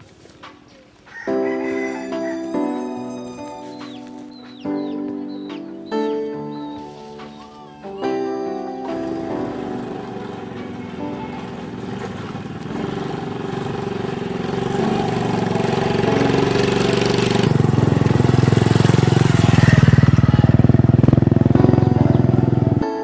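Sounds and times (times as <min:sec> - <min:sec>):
small motorbike passing by: 0:01.5 - 0:04.9, 0:08.8 - 0:23.0.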